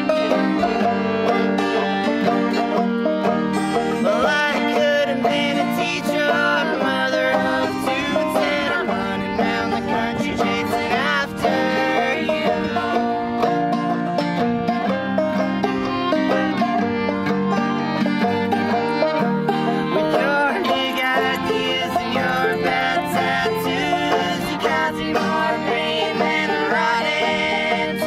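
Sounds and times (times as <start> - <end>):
banjo picked briskly: 0.0 - 28.0
bowed fiddle: 0.0 - 28.0
strummed acoustic guitar: 0.0 - 28.0.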